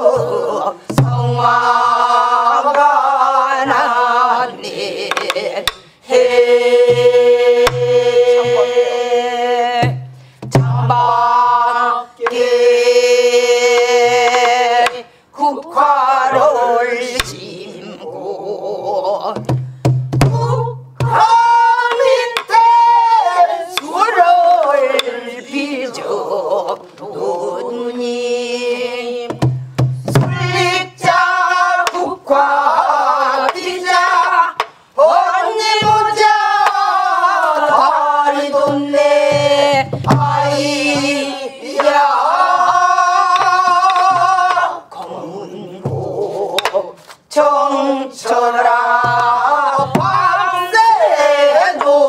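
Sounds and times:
group singing folk song in unison: 0:00.0 - 0:52.0
barrel drum strikes: 0:06.9 - 0:08.6, 0:29.3 - 0:31.2, 0:38.6 - 0:41.3, 0:42.6 - 0:44.6, 0:49.0 - 0:50.6.

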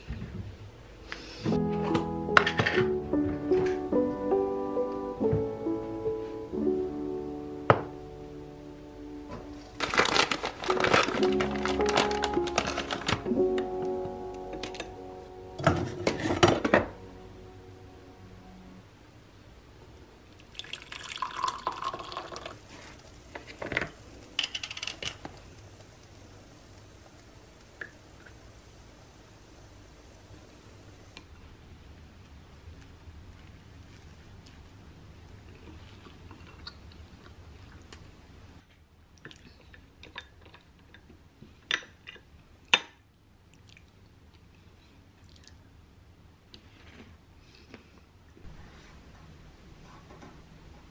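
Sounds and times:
coffee pouring into mug: 0:20.3 - 0:23.1
glass carafe clinking: 0:20.5 - 0:22.6.

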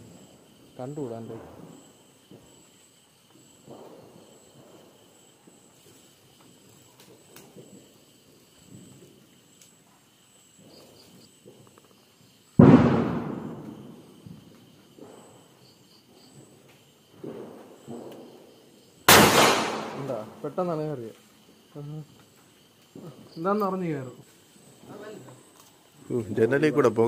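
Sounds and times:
insects chirping: 0:00.0 - 0:27.0
loud firecracker bang: 0:12.6 - 0:14.4, 0:19.1 - 0:20.4.

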